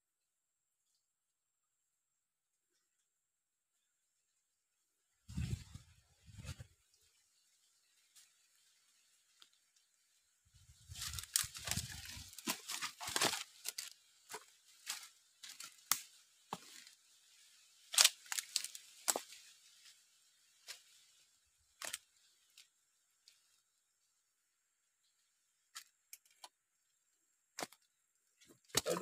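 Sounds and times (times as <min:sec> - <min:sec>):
footsteps crunching dry leaves: 0:10.7 - 0:21.2.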